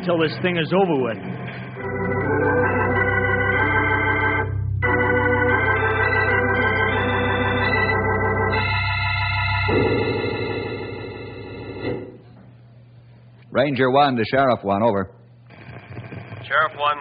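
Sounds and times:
organ chords: 0.0s - 12.4s.

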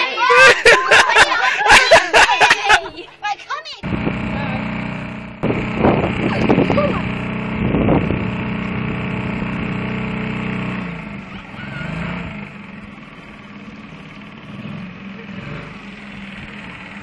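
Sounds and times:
boat motor running: 3.8s - 17.0s.

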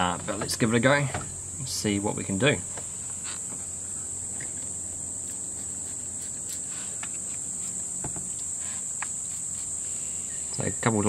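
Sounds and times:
high-pitched insect chirring: 4.7s - 11.0s.

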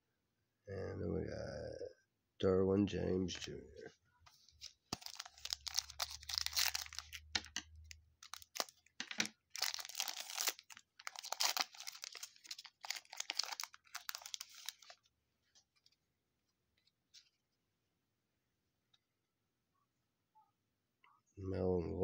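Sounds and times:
foil wrapper crinkling and tearing: 4.6s - 15.1s.

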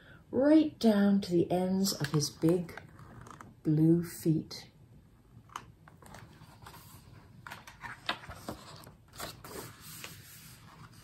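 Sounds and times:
book page rustling: 2.0s - 3.5s, 5.5s - 11.0s.

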